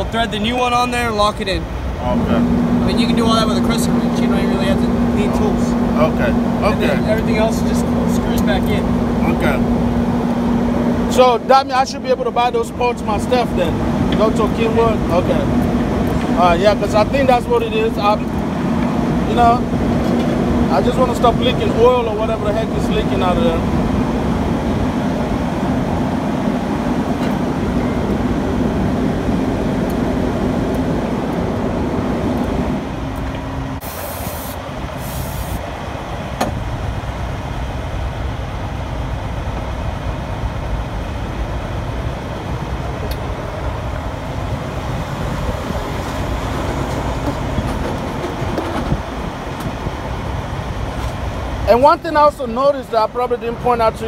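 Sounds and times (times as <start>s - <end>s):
short hisses: 33.8s - 35.6s.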